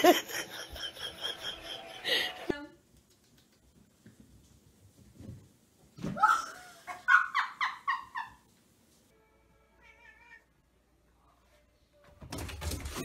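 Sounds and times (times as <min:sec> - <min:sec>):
person laughing: 0:00.0 - 0:02.5.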